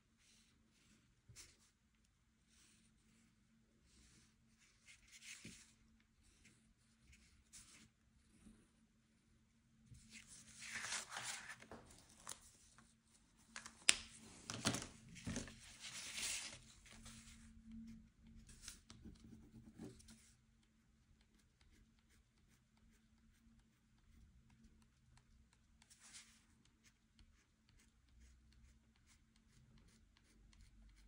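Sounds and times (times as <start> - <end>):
paper rustling and tearing: 10.1 - 12.5.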